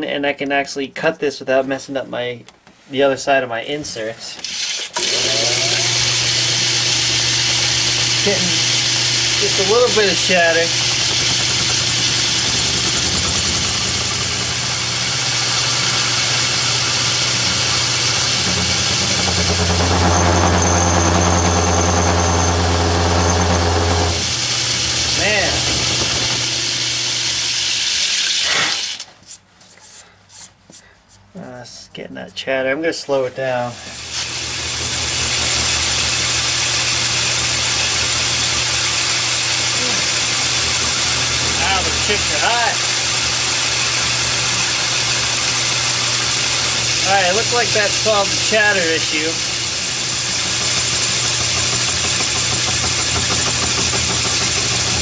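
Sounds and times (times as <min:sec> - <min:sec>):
lathe cutting metal with chatter: 0:05.0 - 0:28.2, 0:34.0 - 0:55.0
lathe hum: 0:05.0 - 0:28.4, 0:33.9 - 0:55.0
thin high whine: 0:15.7 - 0:26.4.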